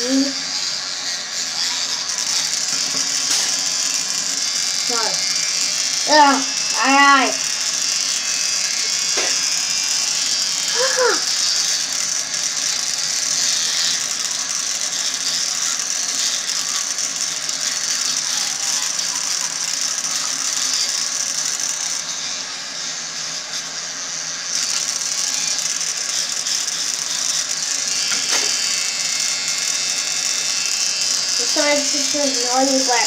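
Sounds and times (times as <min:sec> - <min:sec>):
toothbrush scrubbing teeth: 0:31.4 - 0:33.0.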